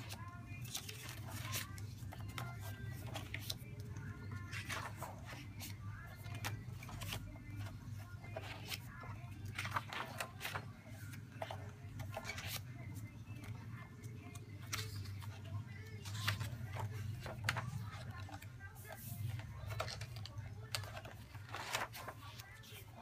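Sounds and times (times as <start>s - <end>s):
paper pages rustling and turning: 0.0s - 23.0s.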